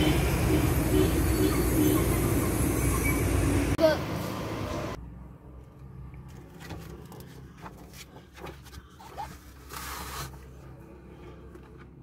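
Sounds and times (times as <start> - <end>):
plastic and clothing rustling: 6.6 - 10.6.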